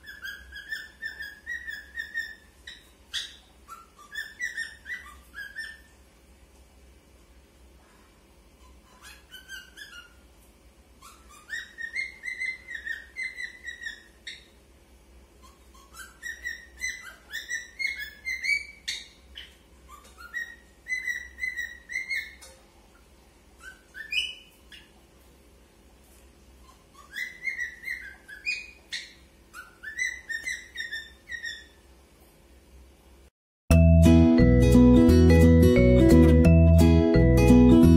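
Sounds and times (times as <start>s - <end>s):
cockatiel whistling: 0.0s - 5.9s, 11.0s - 14.5s, 15.4s - 22.4s, 23.6s - 24.9s, 27.0s - 31.8s.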